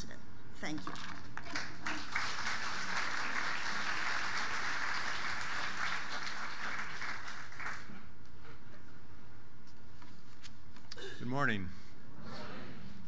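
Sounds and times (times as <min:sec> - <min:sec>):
audience applauding: 0:01.4 - 0:08.1.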